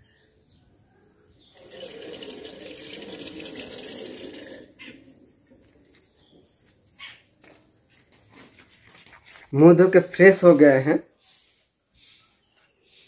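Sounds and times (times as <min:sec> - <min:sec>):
tap water running into basin: 0:01.6 - 0:04.8.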